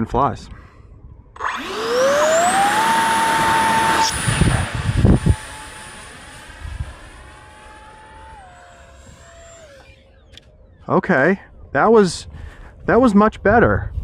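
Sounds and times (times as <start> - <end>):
model jet motor whine: 1.4 - 10.5
rushing noise: 1.5 - 9.8.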